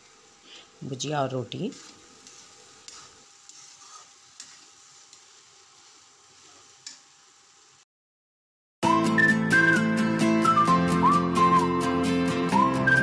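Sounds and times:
okra sizzling in pan: 0:00.0 - 0:07.9.

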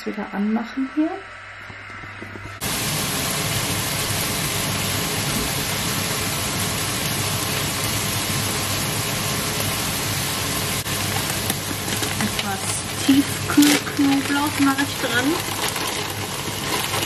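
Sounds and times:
peppers frying in a pan: 0:02.1 - 0:17.0.

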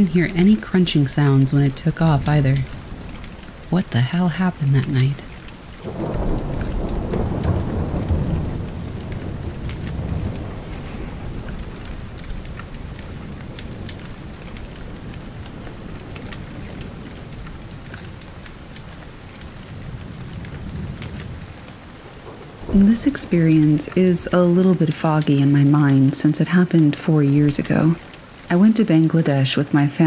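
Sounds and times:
steady rain: 0:00.0 - 0:30.0
thunder rolling: 0:04.8 - 0:26.0.

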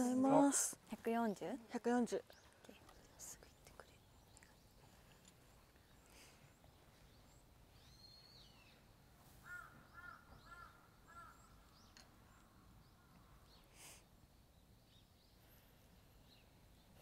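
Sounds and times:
crow cawing: 0:09.4 - 0:11.5.

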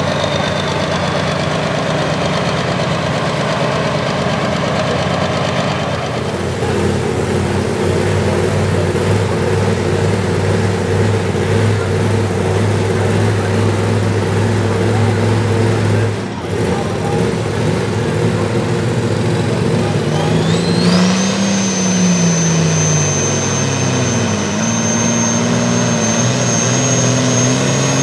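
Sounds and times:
diesel tractor engine idling: 0:00.0 - 0:20.9.

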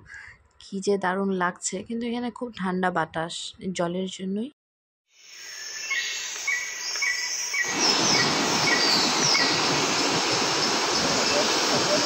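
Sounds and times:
faint hiss: 0:05.2 - 0:12.0
waterfall rushing: 0:07.6 - 0:12.0.

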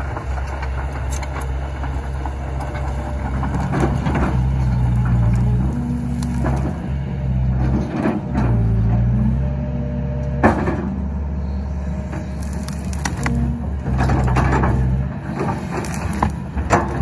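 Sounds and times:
branches crackling and snapping: 0:00.0 - 0:07.9, 0:12.0 - 0:17.0
excavator diesel engine: 0:00.0 - 0:17.0.

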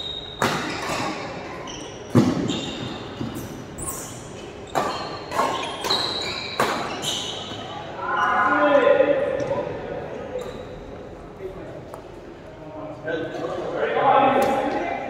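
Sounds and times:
shoes squeaking on court: 0:00.0 - 0:08.4, 0:10.3 - 0:11.1.

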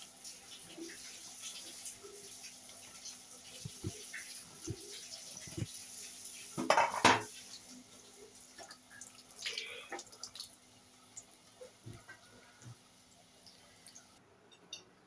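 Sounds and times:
faint deep-frying sizzle: 0:00.0 - 0:14.2
metal utensil clattering on iron pan: 0:06.6 - 0:07.3.

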